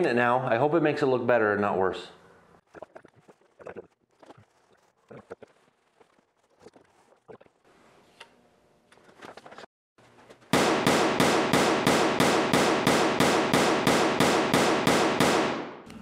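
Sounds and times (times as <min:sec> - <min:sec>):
rapid sharp knocks: 0:10.6 - 0:15.6.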